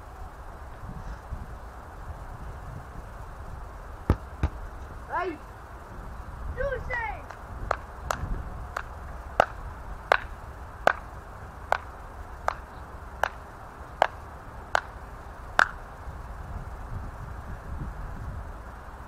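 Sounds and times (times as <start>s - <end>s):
low steady rumble: 0.0s - 19.0s
sharp ticks: 7.2s - 15.9s.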